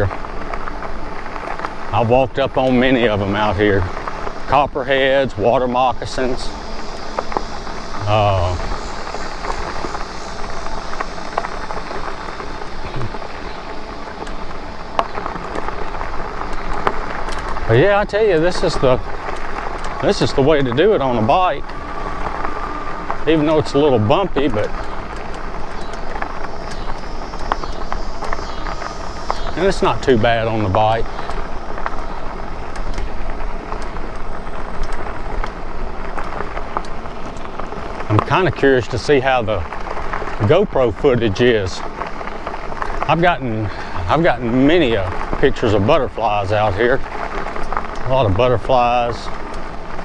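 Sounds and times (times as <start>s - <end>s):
bike tyres crunching on dirt: 0.0s - 50.0s
small clicks and rattles: 8.7s - 20.9s, 24.4s - 29.5s, 31.0s - 40.5s.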